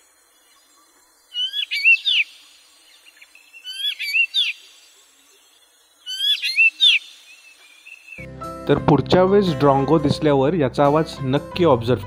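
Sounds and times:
bird calling with sliding high notes: 0.5s - 4.8s, 6.0s - 8.2s.

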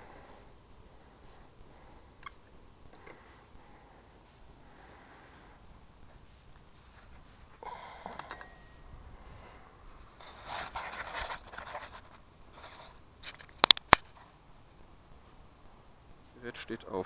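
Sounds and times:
microphone handling scraping: 8.7s - 14.3s
sharp loud clicks: 13.5s - 14.2s.

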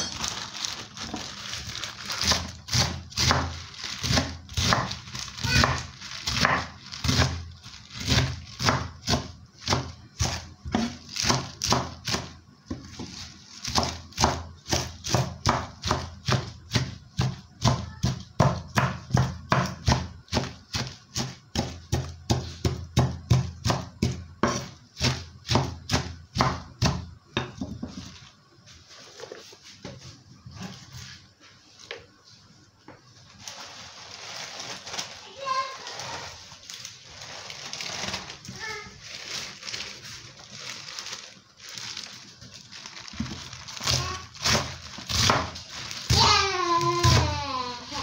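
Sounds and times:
knife chopping on wooden board: 2.2s - 7.4s, 8.0s - 27.9s.

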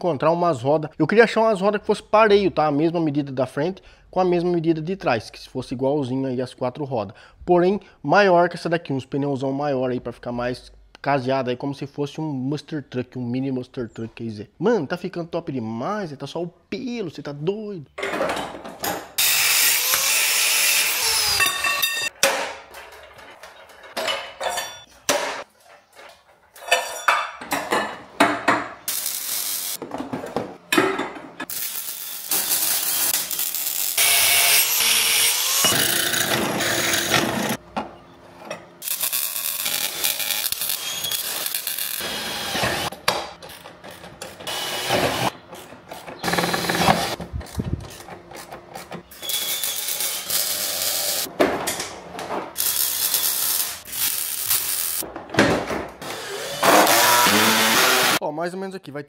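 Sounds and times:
power tools cutting and drilling: 19.2s - 21.6s, 31.6s - 37.6s, 38.8s - 42.9s, 44.4s - 45.3s, 46.2s - 47.2s, 49.1s - 51.3s, 56.0s - 58.2s
knocks and handling noises: 29.8s - 31.5s, 55.0s - 56.0s.

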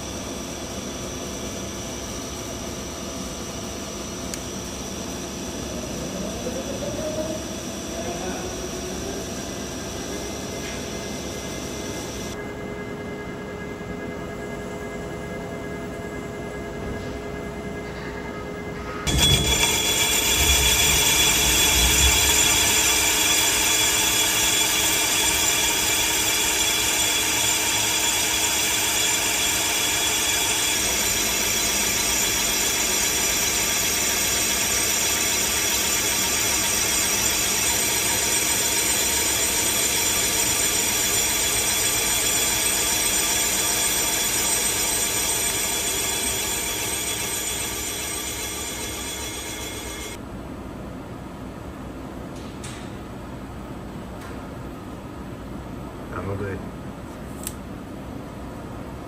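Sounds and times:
lathe cutting metal with ringing tones: 19.0s - 50.2s.

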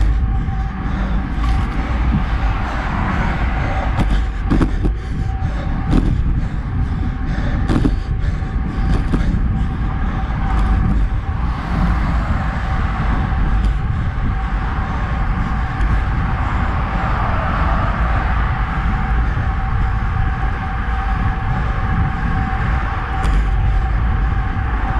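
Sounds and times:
faint steady hum: 0.0s - 24.9s
wind buffeting microphone: 0.0s - 24.9s.

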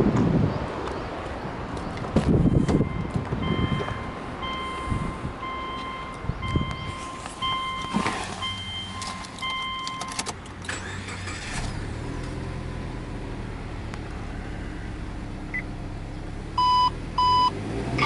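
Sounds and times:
car engine starting and idling: 2.1s - 18.0s
dashboard warning chime beeps: 2.4s - 10.2s, 16.6s - 17.5s.

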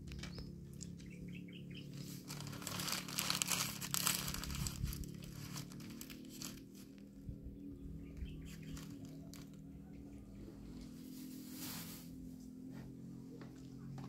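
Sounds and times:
paper wrapper crumpling: 2.0s - 6.8s, 8.4s - 9.6s.

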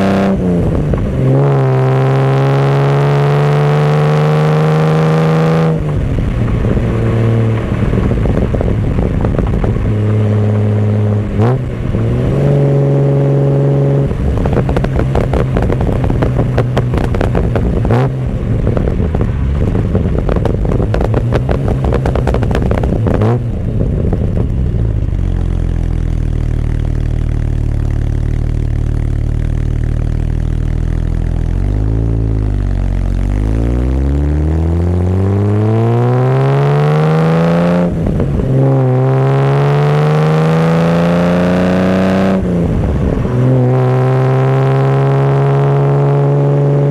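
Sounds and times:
car engine accelerating: 0.0s - 46.9s
wind and road rush: 0.0s - 46.9s
car engine idling: 5.8s - 33.6s.

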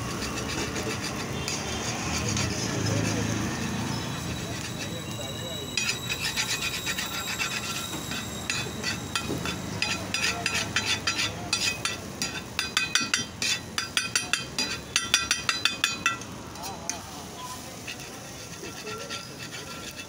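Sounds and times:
metal spatula scraping iron griddle: 0.0s - 20.0s.

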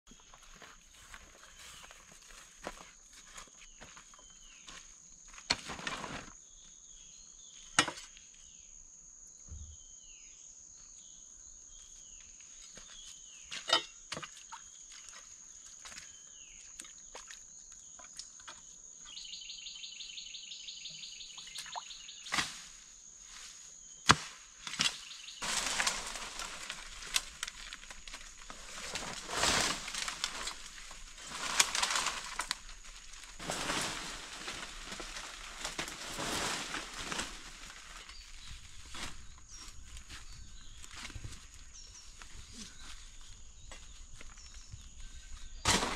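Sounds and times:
rustling in undergrowth: 0.1s - 6.5s, 22.1s - 45.9s
birds chirping: 17.6s - 22.3s, 36.7s - 45.7s.

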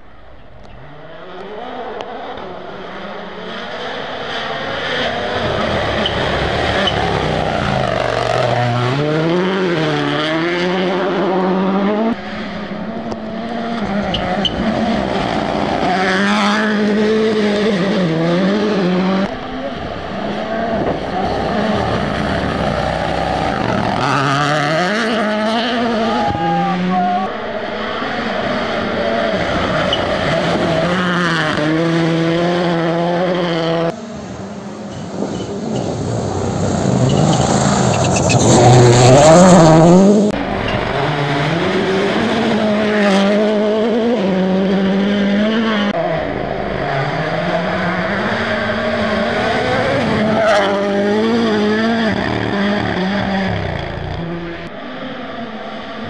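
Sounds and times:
rally car engine revving: 0.1s - 56.0s.

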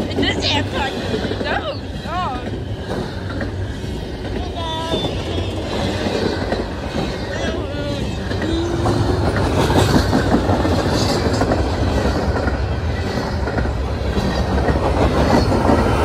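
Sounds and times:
freight train rumbling past: 0.0s - 16.0s
wheels knocking on track: 0.0s - 16.0s.

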